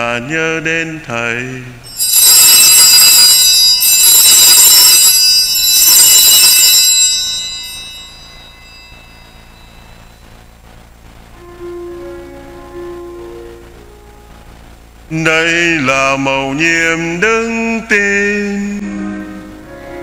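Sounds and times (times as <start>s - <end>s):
small bells ringing: 1.8s - 10.3s.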